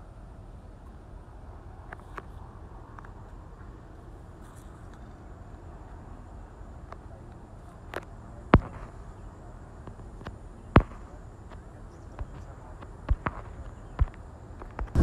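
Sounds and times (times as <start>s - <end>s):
low rushing background noise: 0.0s - 15.0s.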